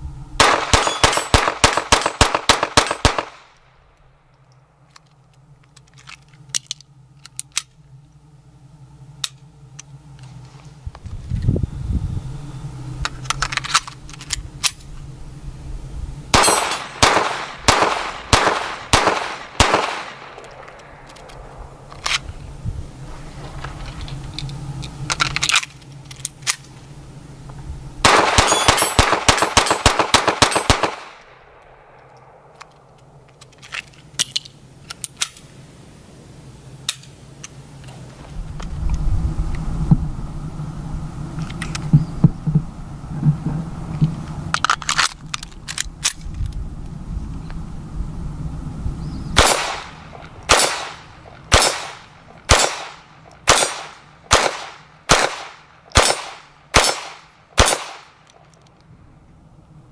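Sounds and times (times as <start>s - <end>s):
rapid gunfire: 0.4s - 3.4s, 16.4s - 20.3s, 28.1s - 31.2s
pistol shots: 0.4s - 3.5s, 16.3s - 20.7s, 28.0s - 31.3s, 49.4s - 58.2s.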